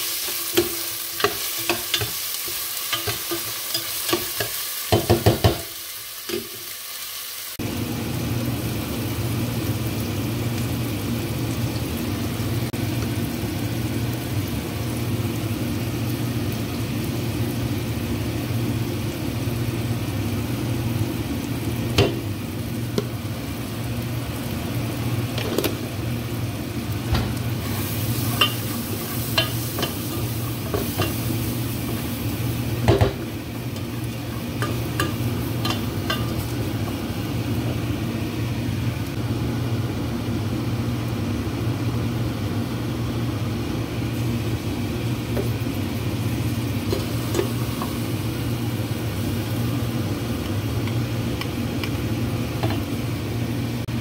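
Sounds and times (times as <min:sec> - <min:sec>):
onions sizzling in oil: 0:00.0 - 0:54.0.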